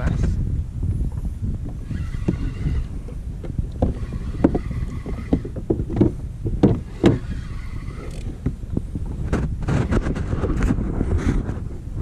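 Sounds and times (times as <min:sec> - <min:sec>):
wind on microphone: 0:00.0 - 0:12.0
water slapping against hull: 0:03.4 - 0:10.8.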